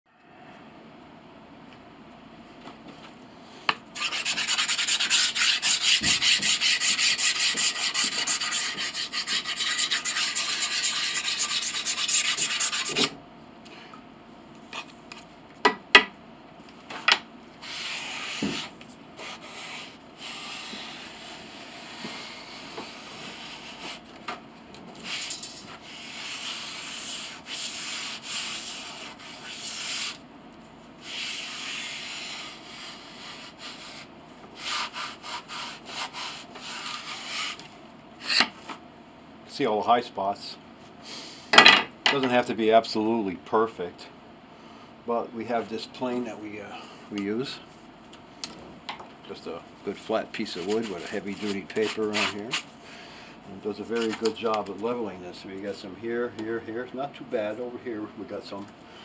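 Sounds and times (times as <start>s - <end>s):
sanding block rubbing wood: 4.0s - 13.1s, 17.6s - 24.0s, 25.0s - 30.2s, 31.0s - 37.6s, 50.4s - 52.6s.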